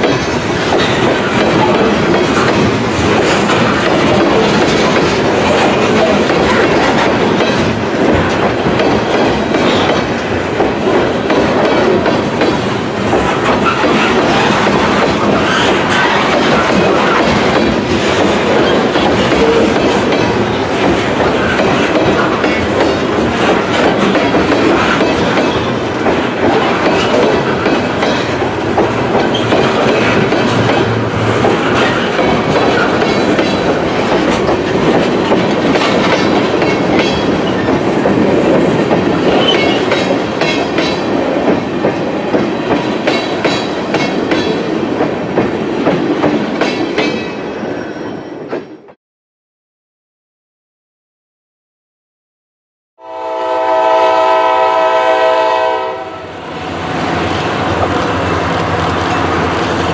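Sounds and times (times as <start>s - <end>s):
wheels clicking over rail joints: 0.0s - 47.2s
steel wheels rumbling on rail: 0.0s - 49.0s, 53.0s - 59.9s.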